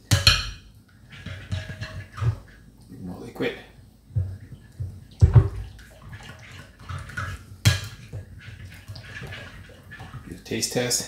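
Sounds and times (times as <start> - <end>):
sharp knocks on glass bowl: 0.1 - 0.6.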